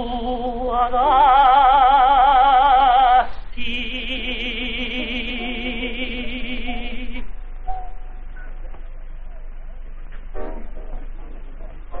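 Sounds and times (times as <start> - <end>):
man singing with vibrato: 0.0 - 7.3.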